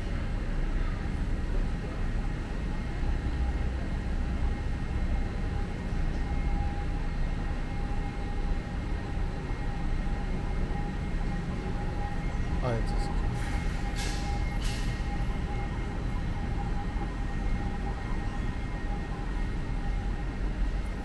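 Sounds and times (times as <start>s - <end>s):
low rumble of market hall: 0.0s - 21.0s.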